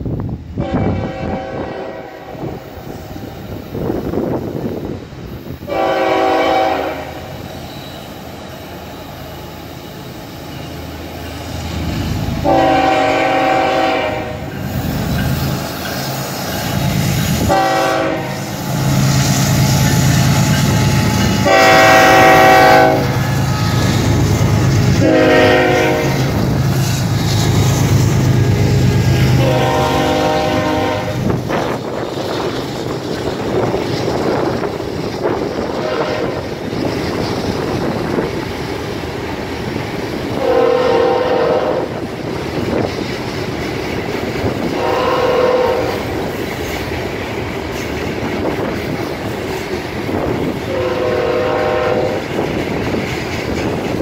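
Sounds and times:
locomotive air horn: 0.6 - 2.6, 5.7 - 7.4, 12.4 - 14.5, 17.3 - 19.7, 20.7 - 24.2, 24.9 - 26.4, 29.1 - 31.4, 35.7 - 36.5, 40.4 - 42.0, 44.7 - 46.2, 50.7 - 52.2.

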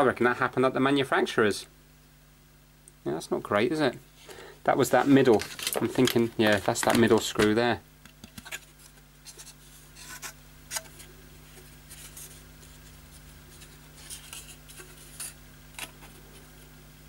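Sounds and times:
low steady hum: 0.0 - 17.0
plastic cover clicks and rubs: 5.0 - 11.1.

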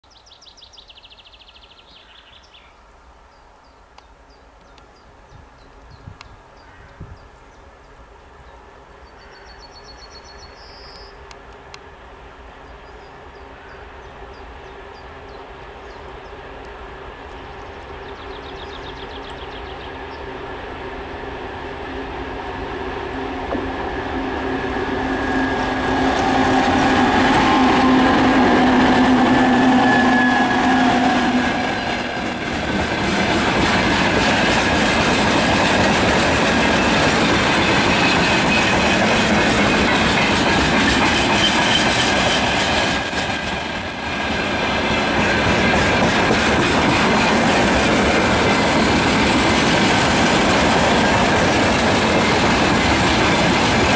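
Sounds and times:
locomotive engine drone: 14.6 - 46.0
train wheels clattering on rails: 23.4 - 53.9.

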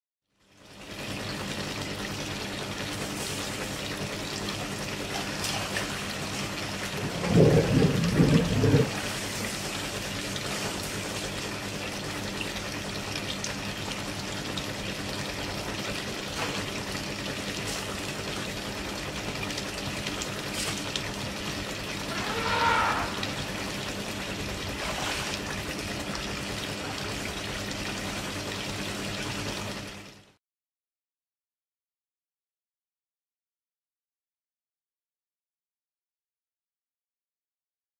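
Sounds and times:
water trickling into pool: 0.4 - 30.4.

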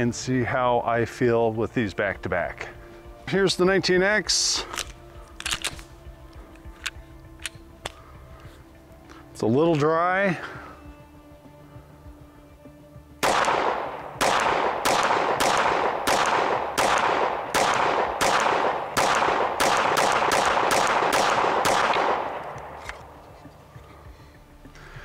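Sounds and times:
pistol shots with echo: 13.2 - 23.1.

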